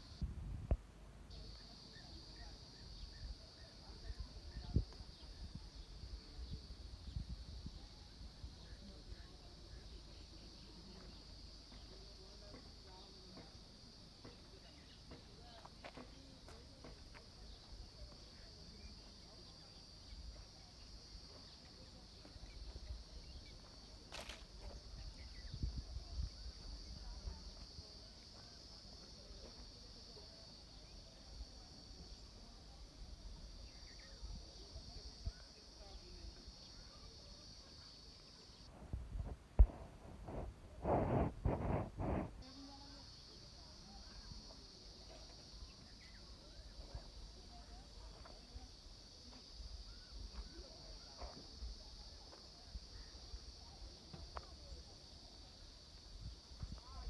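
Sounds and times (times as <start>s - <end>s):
insects droning: 0.0s - 57.0s
wind rumbling on microphone: 0.2s - 0.8s, 4.0s - 8.7s, 24.6s - 27.6s, 38.7s - 42.9s, 56.0s - 57.0s
brief rustle: 24.1s - 24.5s.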